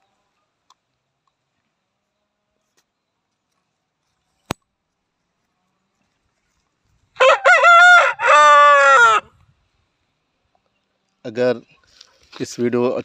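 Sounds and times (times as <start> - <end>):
rooster crowing: 7.2 - 9.3.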